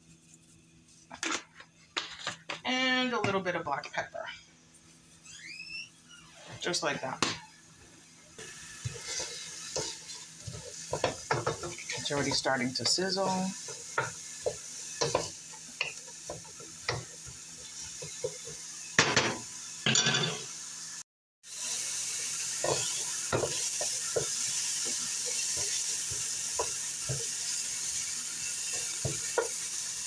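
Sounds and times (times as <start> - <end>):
onions sizzling in a pan: 2.9 - 30.0
wooden spoon scraping a pan: 8.4 - 18.6, 22.6 - 30.0.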